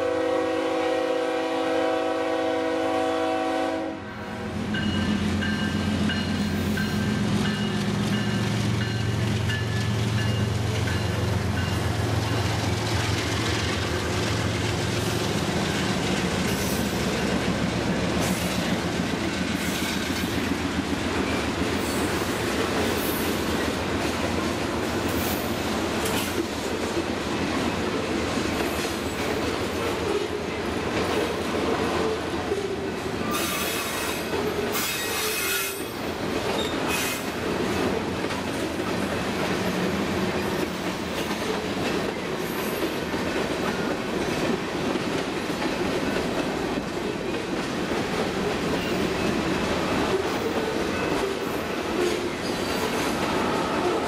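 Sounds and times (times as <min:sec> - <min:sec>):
diesel locomotive engine hum: 0:00.0 - 0:34.9
train wheels clacking on rails: 0:04.6 - 0:54.0
high-pitched wheel squeals: 0:33.3 - 0:36.0.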